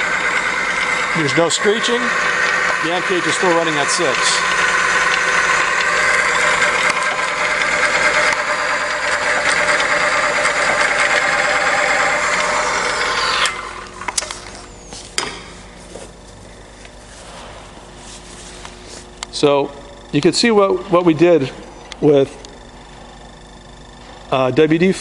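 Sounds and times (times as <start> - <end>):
machine whirring and grinding: 0.0 - 15.1
sharp clicks: 4.0 - 10.0.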